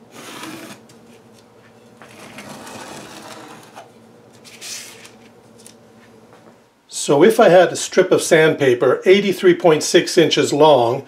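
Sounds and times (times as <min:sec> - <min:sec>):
paper rustling: 0:04.4 - 0:05.8.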